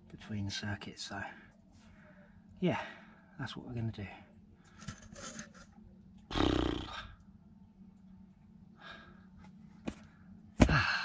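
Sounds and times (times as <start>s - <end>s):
man grunting exhale: 10.6s - 11.0s.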